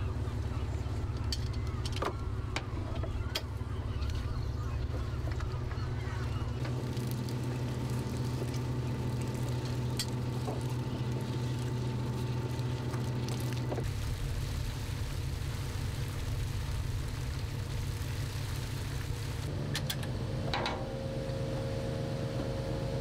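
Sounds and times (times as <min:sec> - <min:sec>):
boat engine drone: 0:00.0 - 0:23.0
small clicks from deck work: 0:19.7 - 0:20.8.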